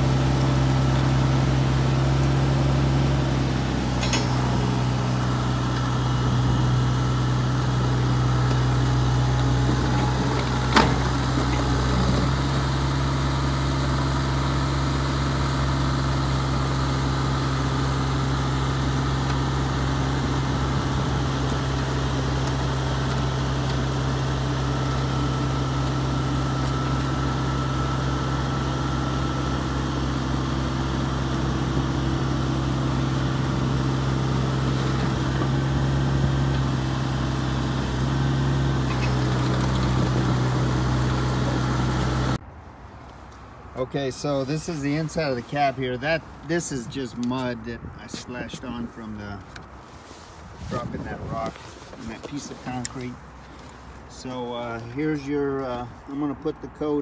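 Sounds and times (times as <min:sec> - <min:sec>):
excavator diesel engine running: 0:00.0 - 0:42.4.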